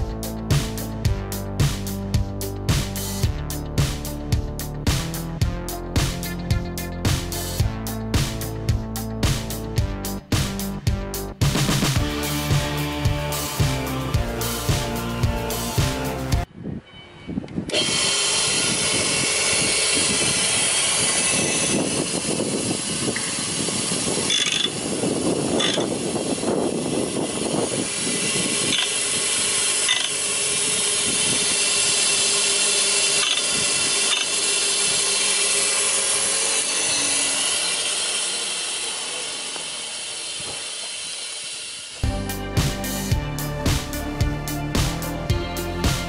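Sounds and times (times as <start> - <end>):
knife sharpener grinding: 17.7 - 42.0.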